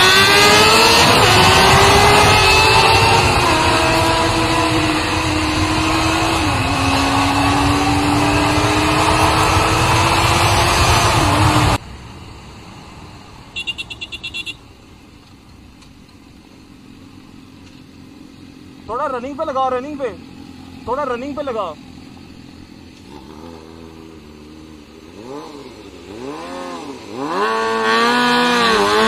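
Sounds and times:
wind rushing noise: 0.0 - 11.8
motorcycle engine at high speed: 0.0 - 12.0, 13.5 - 14.6, 20.0 - 29.0.

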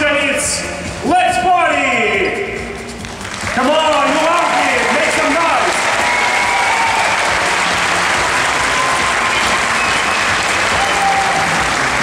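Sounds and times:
audience applauding: 3.0 - 12.0
audience cheering: 3.9 - 12.0.

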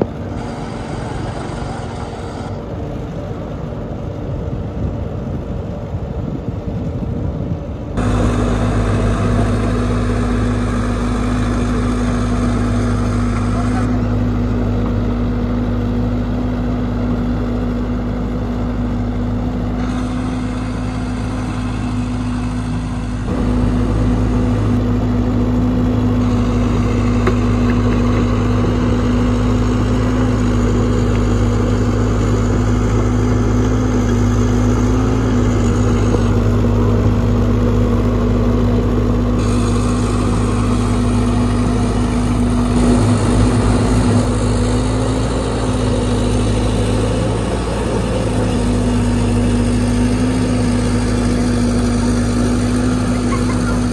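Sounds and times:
small motorbike passing: 0.0 - 2.8, 19.7 - 53.9
excavator diesel engine humming: 0.0 - 53.9.

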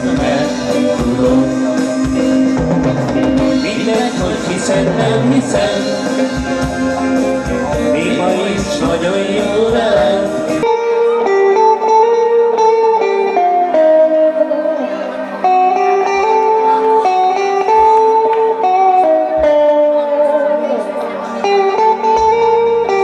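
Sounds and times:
drums and bass: 0.0 - 10.7
live band music: 0.0 - 23.0
melody of held notes: 0.0 - 23.0.

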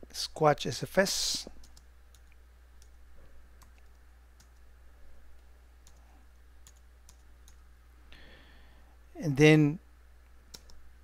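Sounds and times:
low steady hum: 0.0 - 11.0
computer keyboard keystrokes: 5.8 - 6.0, 6.6 - 7.6, 10.5 - 10.8.

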